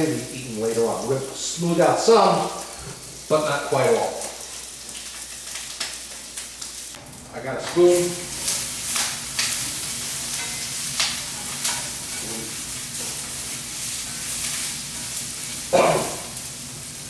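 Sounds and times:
shrimp shells sizzling in oil: 0.0 - 17.0
spoon scraping a pan: 9.4 - 13.2.

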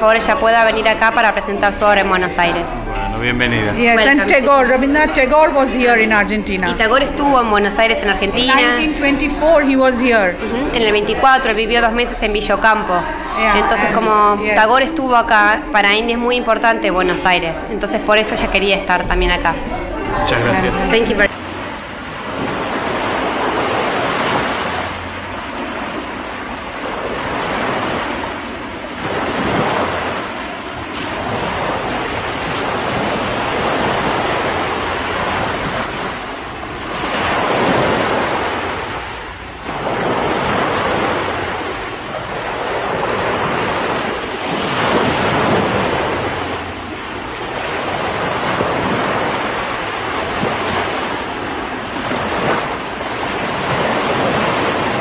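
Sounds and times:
sea waves washing in: 0.0 - 55.0.

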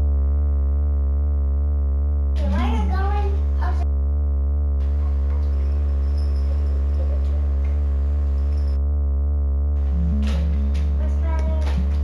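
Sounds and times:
low eerie soundtrack drone: 0.0 - 12.0.

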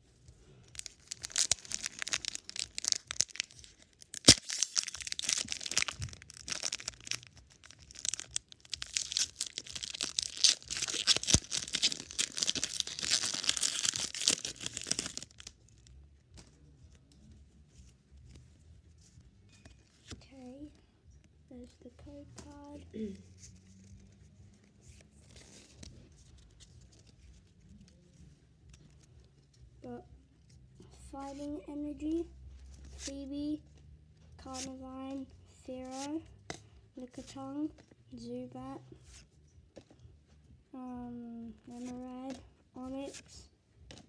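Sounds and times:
foil wrapper tearing and crinkling: 0.7 - 15.6.

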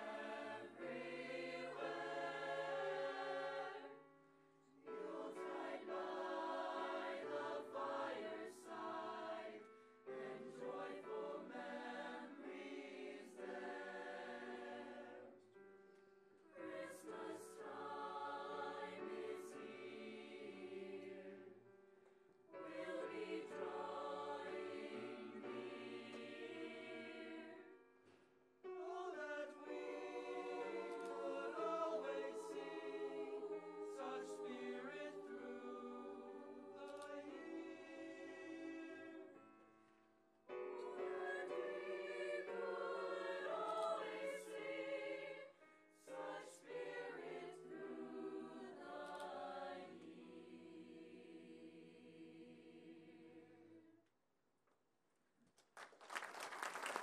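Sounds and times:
choir singing in parts: 0.0 - 4.0, 4.8 - 15.4, 16.5 - 21.7, 22.5 - 27.8, 28.7 - 39.5, 40.6 - 54.0.

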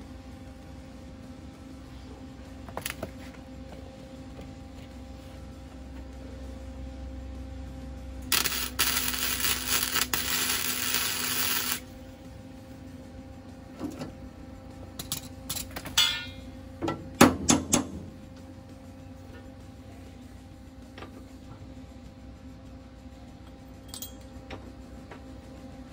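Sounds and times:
welder arc crackling: 8.2 - 12.0
wire brush scrubbing metal: 8.3 - 11.8.

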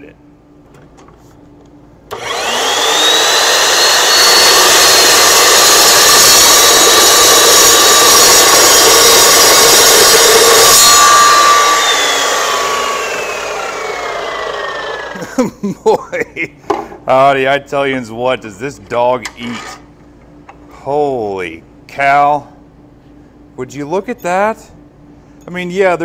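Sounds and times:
saw blade cutting steel: 2.1 - 15.2
miter saw motor whine: 2.1 - 15.3.

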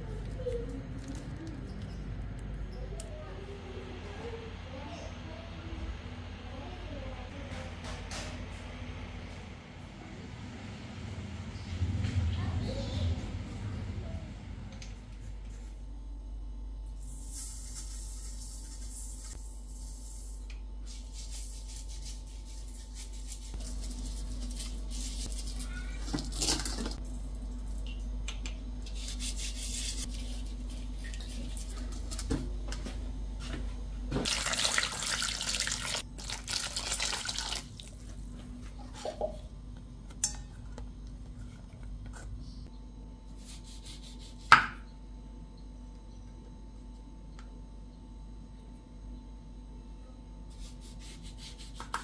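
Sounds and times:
water running into metal bowl: 34.3 - 38.0.

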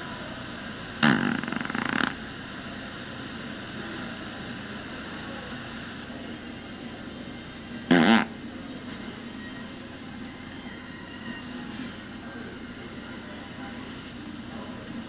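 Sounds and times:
steady background hum: 0.0 - 15.0
fart noise toy: 1.0 - 2.2, 7.9 - 8.3.

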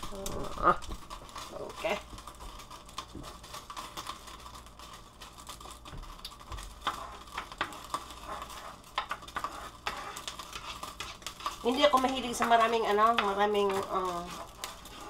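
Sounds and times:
spatula scraping frying pan: 6.4 - 15.0.

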